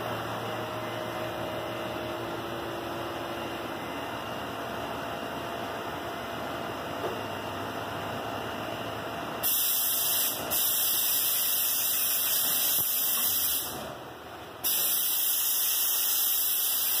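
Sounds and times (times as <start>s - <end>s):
loud steady hiss: 9.4s - 13.8s, 14.6s - 17.0s.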